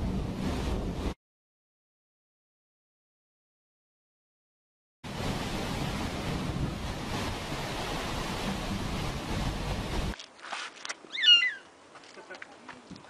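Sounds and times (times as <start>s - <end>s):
wind noise on microphone: 0.0s - 1.2s, 5.1s - 10.2s
cat meowing: 11.1s - 11.6s.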